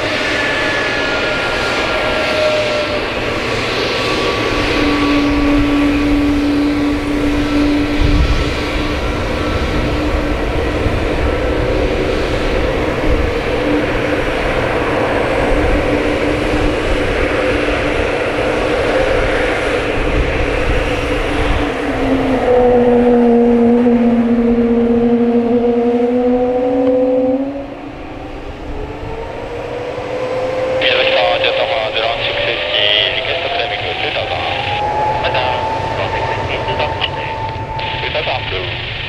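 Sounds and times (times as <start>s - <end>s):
jet engine roar: 0.0s - 39.0s.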